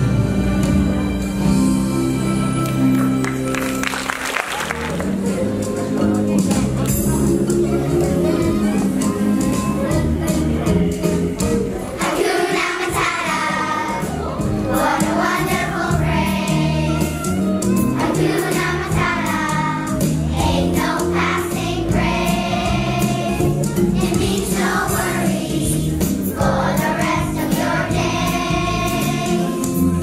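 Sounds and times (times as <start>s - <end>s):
instrumental accompaniment with beat: 0.0s - 30.0s
children's choir singing: 11.8s - 17.3s, 17.9s - 30.0s.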